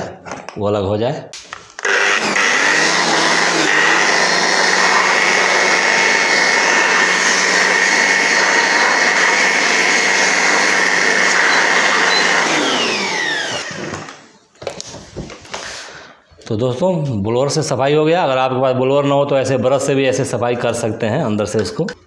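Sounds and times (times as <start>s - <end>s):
electric air blower whining: 1.4s - 14.3s
motor spinning down: 1.8s - 14.2s.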